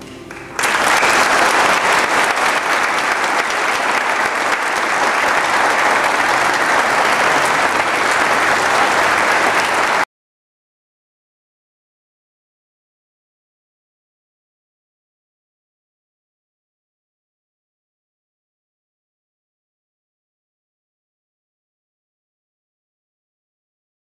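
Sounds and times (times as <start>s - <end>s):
audience applause: 0.3s - 10.1s.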